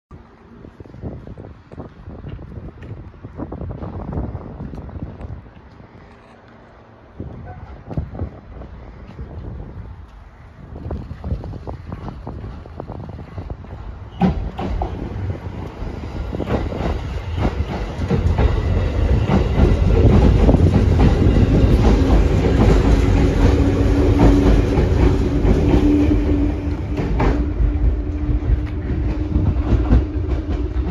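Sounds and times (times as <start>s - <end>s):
steady train hum: 0.1s - 30.9s
train wheels clacking on rails: 11.8s - 30.9s.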